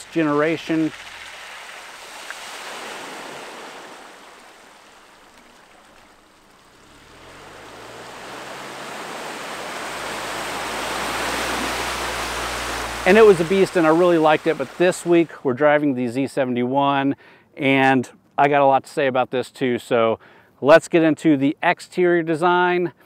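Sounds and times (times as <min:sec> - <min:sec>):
tyre and road noise: 0:00.0 - 0:15.4
low engine hum: 0:03.2 - 0:15.2.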